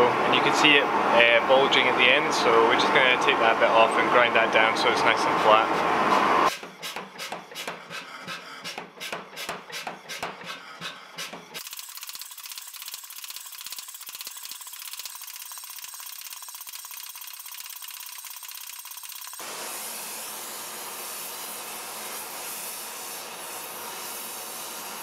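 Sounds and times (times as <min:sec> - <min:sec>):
power hammer striking steel: 0:06.5 - 0:11.6.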